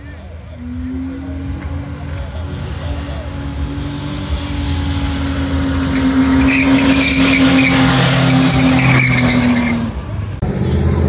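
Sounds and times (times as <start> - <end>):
truck engine at high revs: 0.0 - 11.0
tyres squealing: 5.6 - 9.9.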